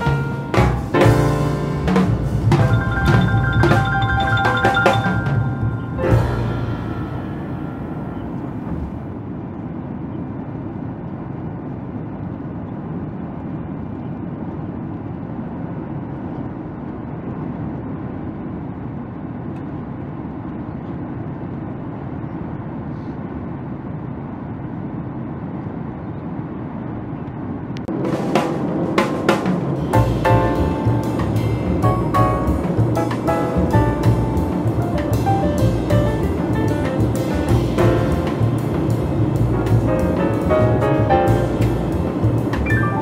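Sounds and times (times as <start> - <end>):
music: 0.0 - 9.0, 28.0 - 43.0
airliner cabin engine rumble: 0.0 - 43.0.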